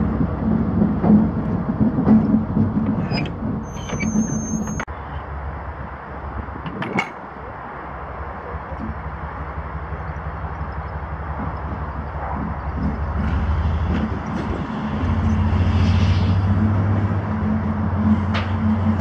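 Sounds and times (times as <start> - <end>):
diesel locomotive engine rumble: 0.0 - 19.0
high-pitched wheel squeal: 3.0 - 4.9.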